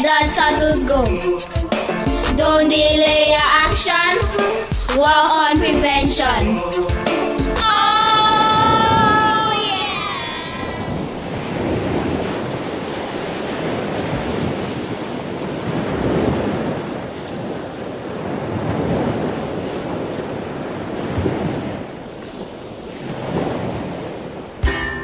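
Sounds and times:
small waves washing onto shore: 6.9s - 25.0s
wind buffeting microphone: 7.6s - 24.6s.

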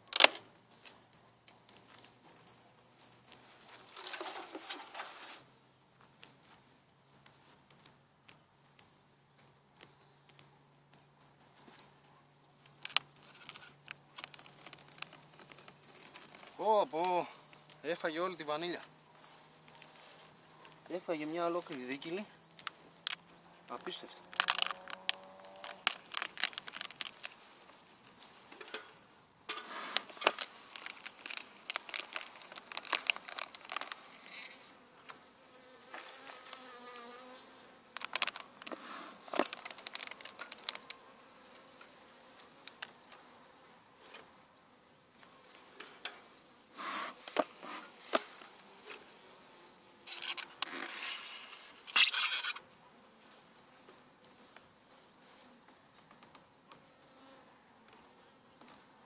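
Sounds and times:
honeybees buzzing: 12.6s - 59.0s
plastic wrapper crinkling: 12.8s - 16.6s, 23.9s - 27.8s, 30.0s - 34.6s, 38.0s - 41.0s.

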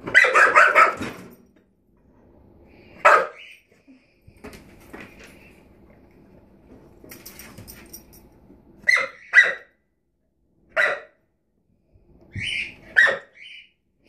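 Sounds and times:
puppy barking: 0.0s - 1.2s, 3.0s - 3.5s, 8.8s - 9.8s, 10.7s - 11.2s, 12.5s - 13.6s
puppy yelping: 8.9s - 9.7s, 12.3s - 13.7s.

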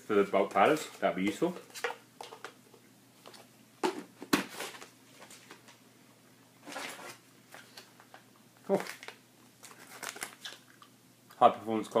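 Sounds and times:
packaging rustling: 6.6s - 10.8s.

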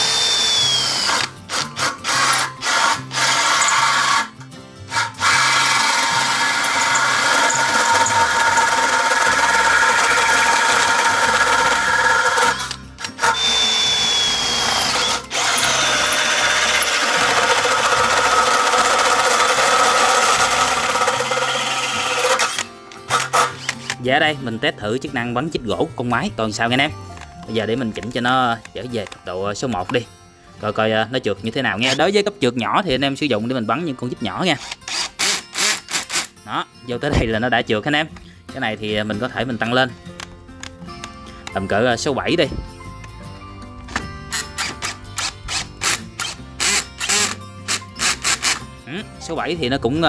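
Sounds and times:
cordless drill with hole saw: 0.0s - 24.0s, 34.6s - 36.4s, 44.3s - 48.7s.

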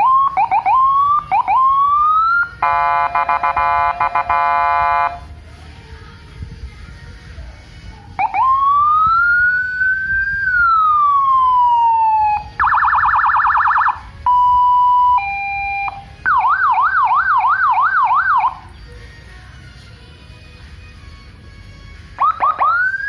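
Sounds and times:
electronic siren cycling tones: 0.0s - 5.2s, 8.2s - 18.6s, 22.2s - 23.0s.

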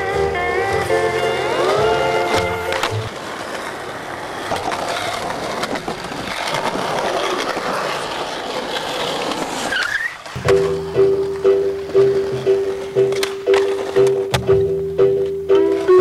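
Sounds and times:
slide guitar music: 0.0s - 3.1s, 10.4s - 16.0s
skateboard wheels rolling on concrete: 0.0s - 16.0s
skateboard clicks and taps: 1.0s - 15.9s.

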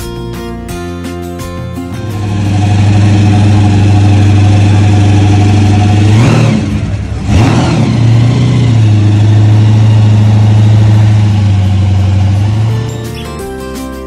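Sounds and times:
car engine idling and revving: 1.9s - 13.1s.

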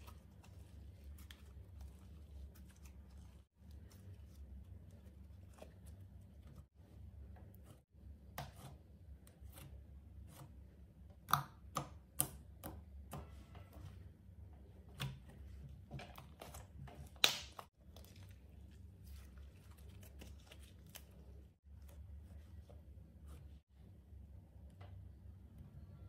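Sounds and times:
slime squishing: 0.0s - 10.6s, 14.6s - 23.6s.

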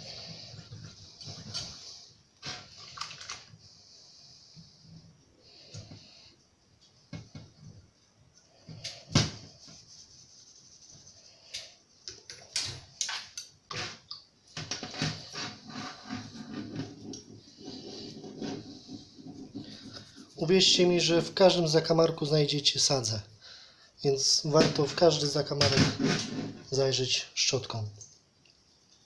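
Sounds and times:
brush scrubbing metal: 9.4s - 11.7s, 14.8s - 21.8s.

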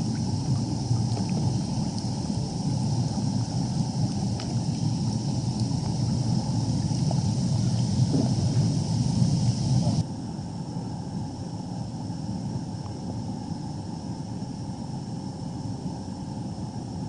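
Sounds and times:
spa jets churning water: 0.0s - 10.0s.

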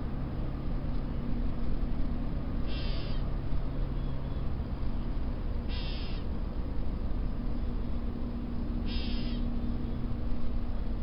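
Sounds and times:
bird harsh mew call: 2.7s - 3.2s, 5.7s - 6.2s, 8.8s - 9.5s.

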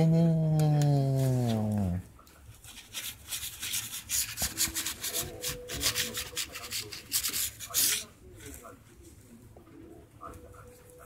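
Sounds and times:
fingers scratching on a surface: 2.6s - 8.1s.

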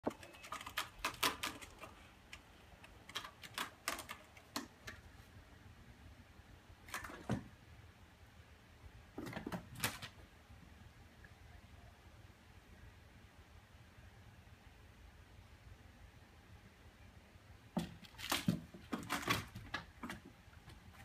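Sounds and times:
kitten claws scratching post: 0.0s - 5.1s.

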